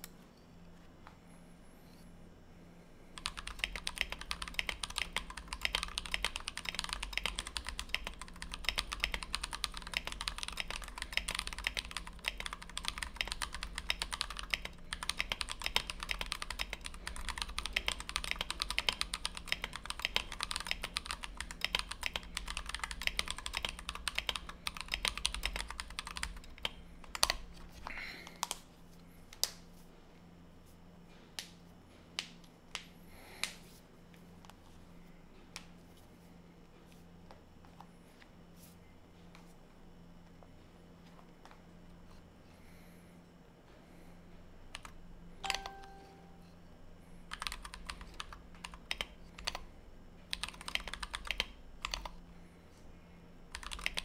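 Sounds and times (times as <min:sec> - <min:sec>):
fast mechanical keyboard typing: 0:03.2 - 0:27.4, 0:44.7 - 0:45.9, 0:47.3 - 0:52.2, 0:53.5 - 0:54.0.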